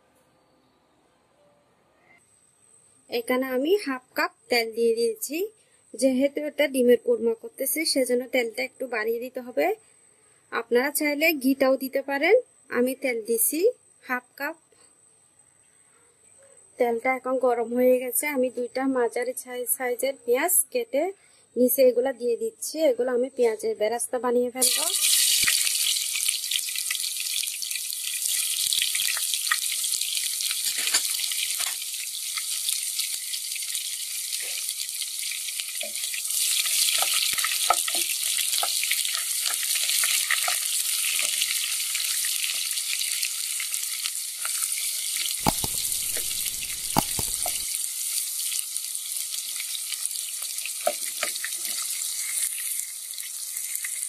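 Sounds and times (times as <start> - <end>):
onions sizzling in hot oil: 24.6 - 54.0
plastic spatula clicking on pot: 45.4 - 47.6.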